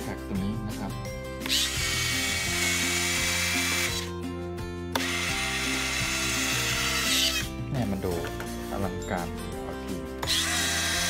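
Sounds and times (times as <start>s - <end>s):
landing gear motor whirring: 1.4s - 4.1s, 5.0s - 7.5s, 10.2s - 11.0s.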